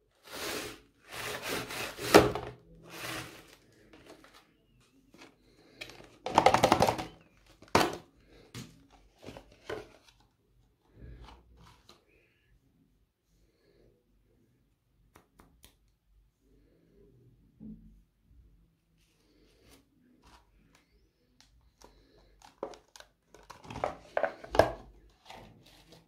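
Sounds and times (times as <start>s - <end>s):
hands rubbing plastic tubes: 0.2s - 6.5s.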